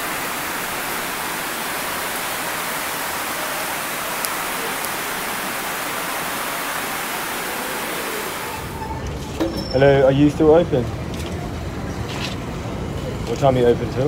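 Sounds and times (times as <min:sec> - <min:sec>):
heavy rain hiss: 0:00.0 - 0:08.9.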